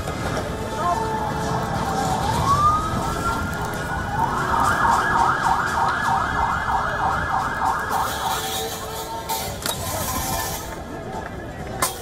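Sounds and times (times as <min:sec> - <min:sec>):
noisy street background: 0:00.0 - 0:12.0
emergency siren wailing and yelping: 0:01.0 - 0:08.8.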